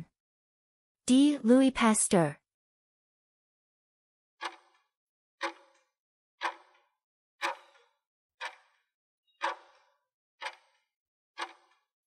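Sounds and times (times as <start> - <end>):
clock-like ticks: 4.4 - 11.9.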